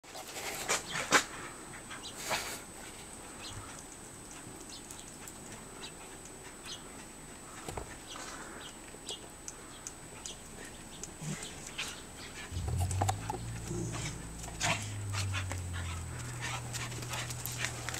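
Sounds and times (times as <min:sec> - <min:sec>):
low dog sound: 0:10.1 - 0:17.9.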